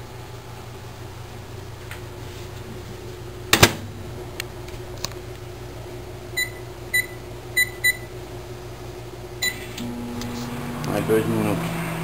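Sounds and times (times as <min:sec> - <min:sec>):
steady low hum: 0:00.0 - 0:12.0
microwave keypad beeps: 0:06.4 - 0:08.1, 0:09.4 - 0:09.7.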